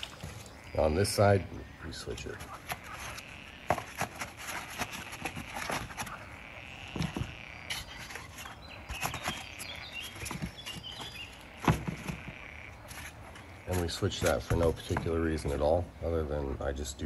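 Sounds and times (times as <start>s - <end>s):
paper egg crates rustling and scraping: 2.0s - 6.3s, 7.0s - 15.8s.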